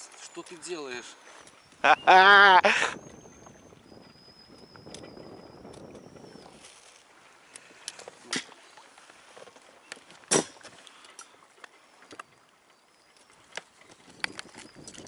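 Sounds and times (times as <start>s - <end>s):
knocks and scrapes in boat: 5.8s - 7.1s, 7.7s - 12.4s, 13.0s - 15.0s.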